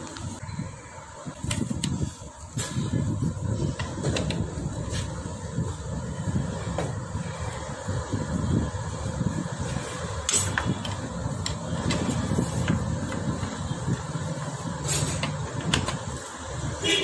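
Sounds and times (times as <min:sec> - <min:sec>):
engine low rumble: 0:00.0 - 0:16.8
sharp clicks and knocks: 0:15.0 - 0:16.2.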